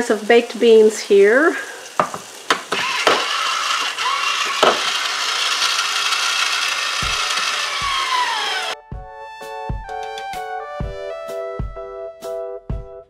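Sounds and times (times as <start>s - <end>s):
can opener clicks: 2.5s - 7.8s
can opener motor whirring: 2.5s - 8.8s.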